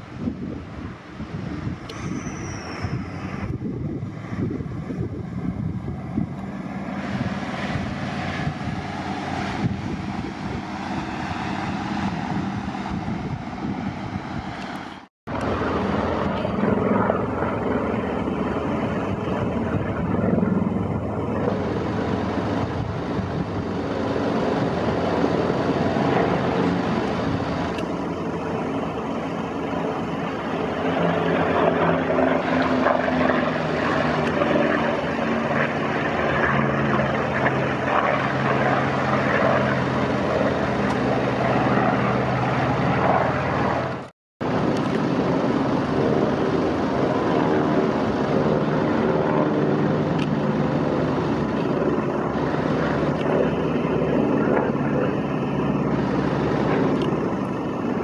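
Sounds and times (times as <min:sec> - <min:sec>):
propeller plane droning overhead: 0:00.0 - 0:58.0.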